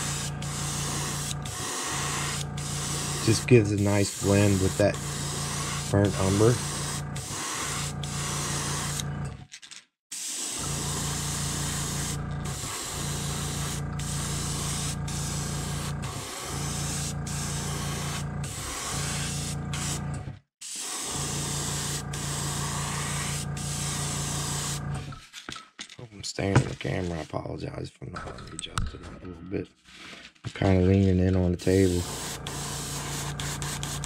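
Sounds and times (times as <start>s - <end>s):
airbrush spraying: 0.0s - 9.0s, 10.1s - 20.0s, 20.6s - 24.8s, 31.6s - 34.0s.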